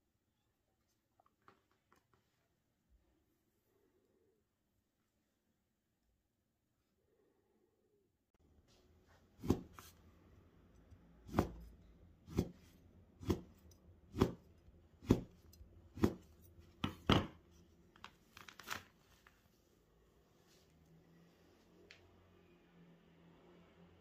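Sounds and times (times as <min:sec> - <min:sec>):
knife chopping on wooden board: 0:09.4 - 0:09.9, 0:11.2 - 0:17.4.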